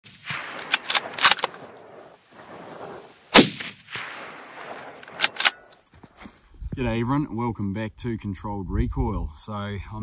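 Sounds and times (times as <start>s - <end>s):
rifle shot with echo: 0.0s - 2.1s, 2.8s - 5.6s.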